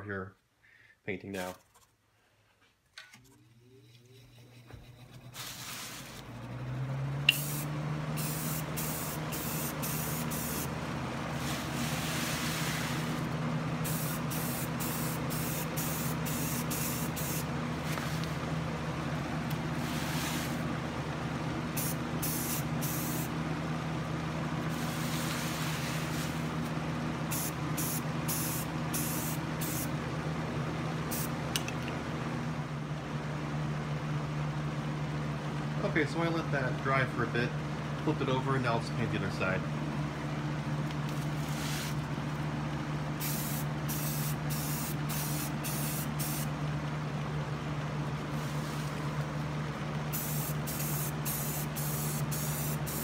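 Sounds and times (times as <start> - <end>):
aerosol spray hissing: 7.3 - 10.7, 13.8 - 17.5, 21.8 - 23.3, 27.3 - 29.9, 43.2 - 46.5, 50.1 - 53.0.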